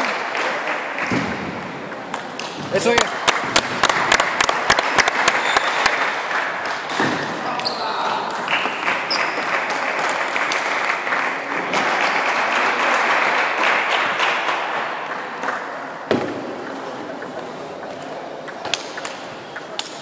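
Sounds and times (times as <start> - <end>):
applause echoing in hall: 0.0 - 1.5, 2.8 - 6.9, 8.2 - 15.5
table tennis ball struck: 16.1 - 16.8.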